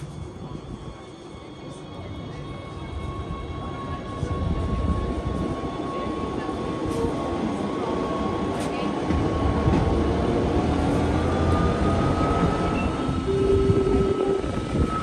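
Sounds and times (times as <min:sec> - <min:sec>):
train low rumble: 0:00.0 - 0:15.0
steady high-pitched tone: 0:11.2 - 0:15.0.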